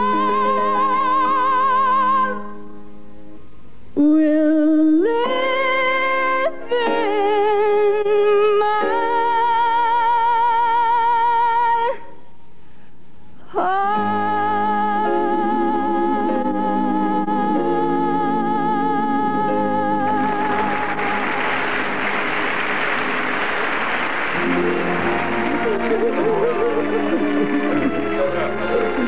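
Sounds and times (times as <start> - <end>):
soft musical accompaniment: 0.0 - 12.2, 13.3 - 29.0
woman singing a slow ballad: 4.0 - 12.1, 13.4 - 20.8.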